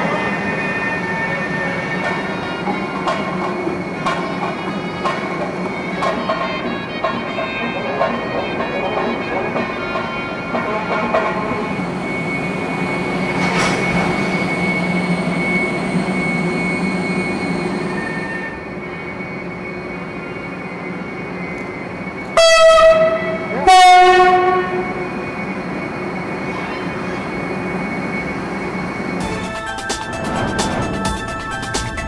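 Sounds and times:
locomotive humming: 0.0 - 32.0
locomotive horn blasts: 1.8 - 14.1, 22.3 - 25.4.

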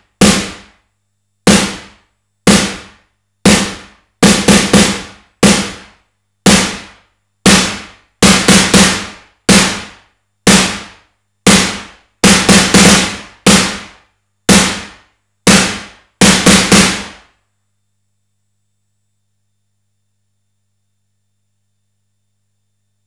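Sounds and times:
electronic snare drum hits: 0.0 - 0.8, 1.4 - 17.3.

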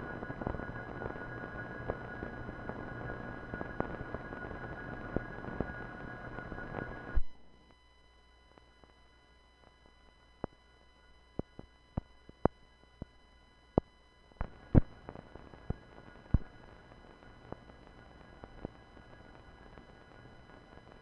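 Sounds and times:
faint steady tones: 0.0 - 21.0
low steady hum: 0.0 - 21.0
film soundtrack clicks and pops: 14.4 - 16.6.

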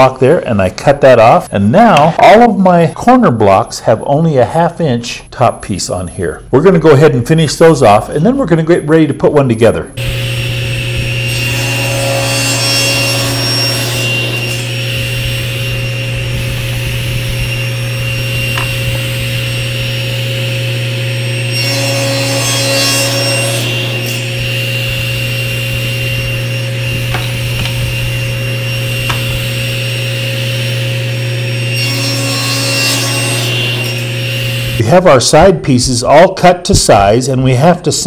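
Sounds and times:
saw cutting wood: 10.0 - 34.8
table saw motor humming: 10.0 - 34.8.

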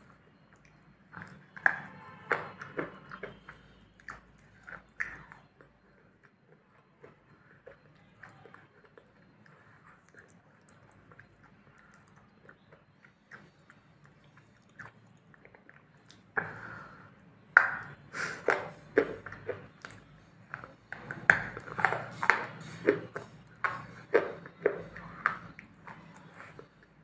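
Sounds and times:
person chewing crunchy food: 0.0 - 27.0.

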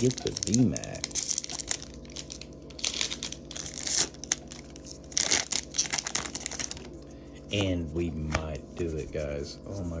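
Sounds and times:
foil wrapper crinkling: 0.0 - 7.0.

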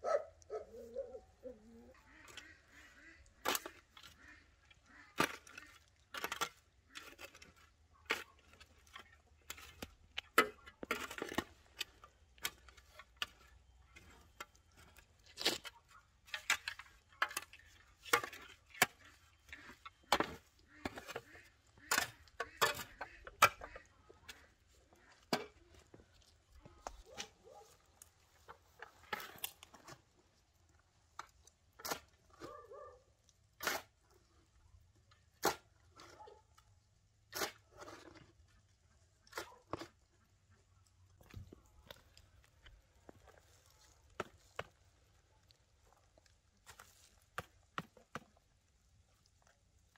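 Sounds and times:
shovel digging into soil: 2.3 - 4.2, 5.1 - 24.6, 31.8 - 32.6, 33.6 - 34.0, 35.3 - 36.2, 37.3 - 38.3.

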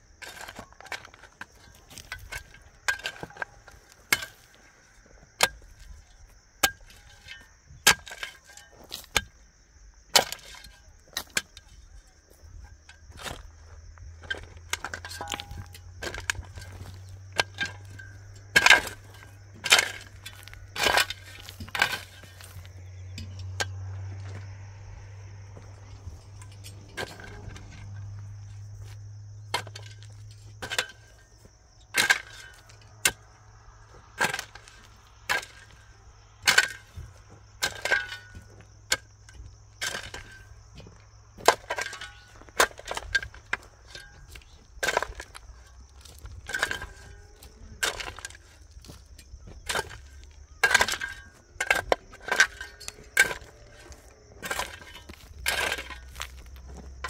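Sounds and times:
hand tool striking hard material: 6.6 - 9.4, 14.2 - 23.8, 34.1 - 35.8, 36.4 - 45.4, 46.2 - 57.0.

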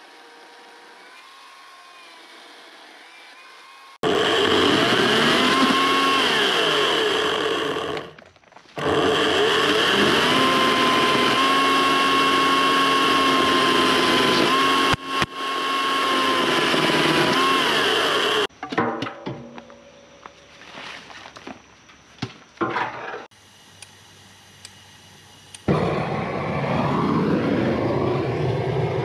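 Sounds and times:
electric chainsaw cutting branches: 3.8 - 8.2, 8.8 - 18.5, 25.6 - 29.0
chainsaw clicks: 4.1 - 11.4.

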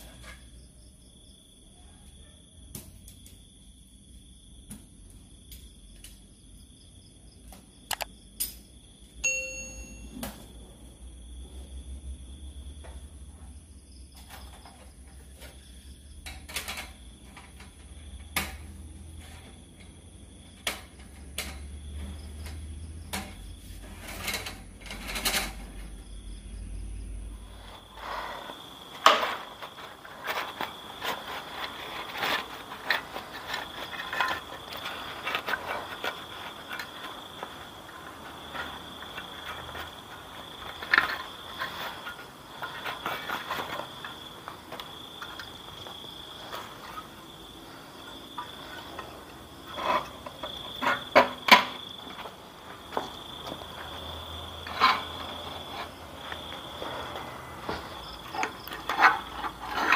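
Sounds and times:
nylon bag rustling: 27.4 - 44.2
small items clattering: 27.4 - 59.9.

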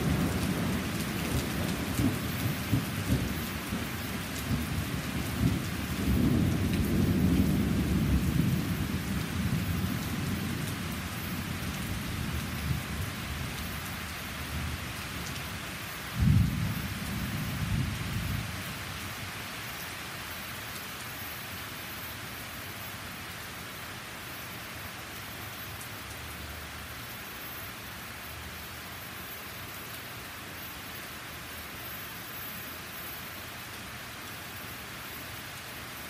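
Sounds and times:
thunder rumbling: 0.0 - 19.1
rain falling on trees and patio: 0.0 - 36.0.

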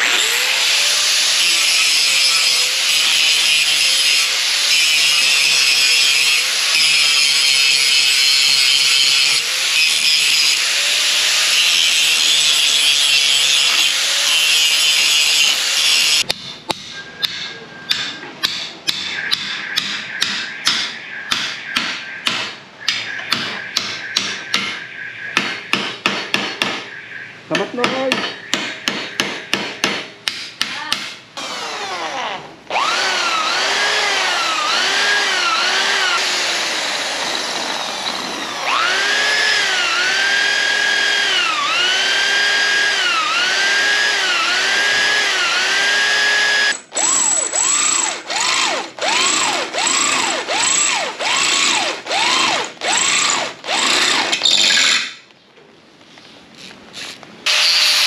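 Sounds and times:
power tool whining: 0.0 - 16.3, 31.4 - 55.0, 57.5 - 58.0.

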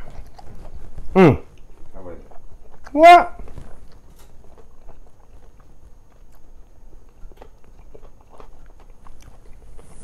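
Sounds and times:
person chewing: 0.0 - 10.0.

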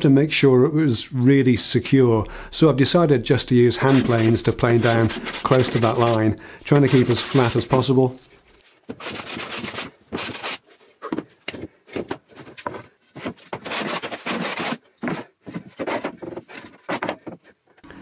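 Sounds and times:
hand plane shaving plywood: 3.8 - 8.2, 8.9 - 17.6.

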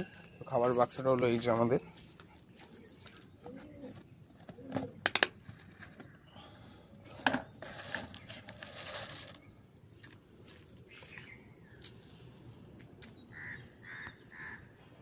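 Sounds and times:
faint bird calls: 13.0 - 15.0.

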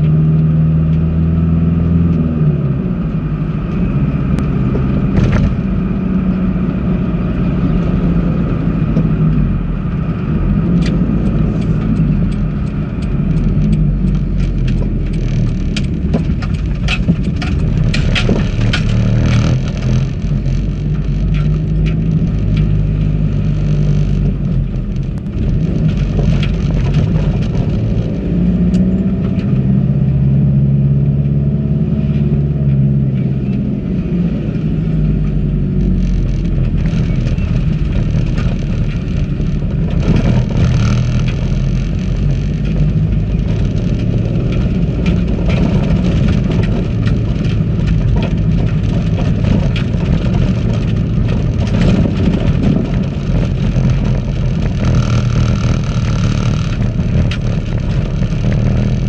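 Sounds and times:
vehicle engine running: 0.0 - 59.0
sharp clicks and knocks: 4.4 - 5.8, 10.5 - 30.2, 35.0 - 59.0.

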